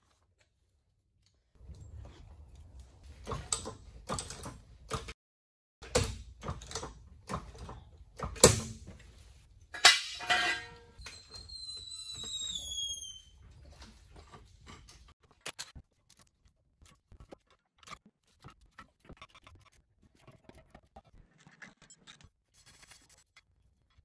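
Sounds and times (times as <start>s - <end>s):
metal clanks and knocks: 9.7s - 11.0s
hydraulic jack squeal falling in pitch: 11.0s - 13.4s.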